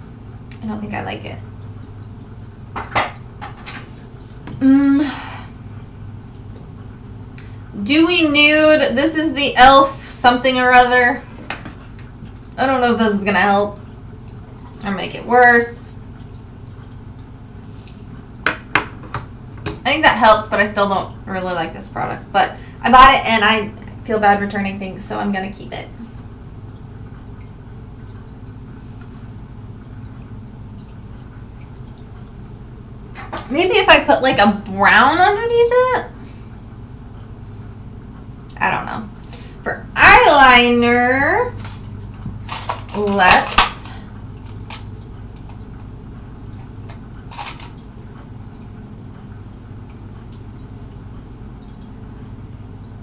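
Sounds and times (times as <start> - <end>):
aquarium filter humming: 0.0 - 53.0
water trickling and dripping: 0.0 - 53.0.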